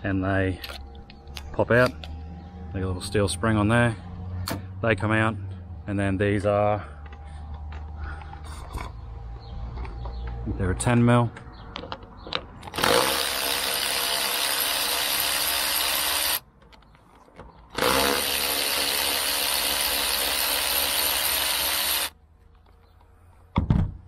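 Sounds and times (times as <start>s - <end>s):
electric ratchet running: 12.7s - 16.4s, 17.8s - 22.2s.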